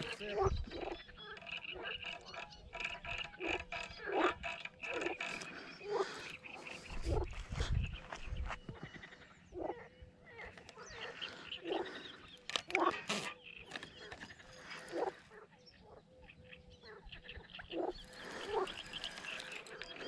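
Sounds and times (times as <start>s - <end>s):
frogs croaking: 0.0s - 20.0s.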